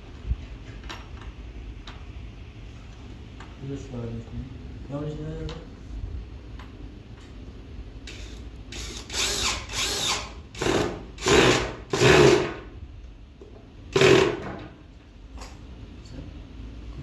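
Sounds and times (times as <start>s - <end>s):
cordless drill bursts: 8.1s - 12.6s, 14.0s - 14.4s.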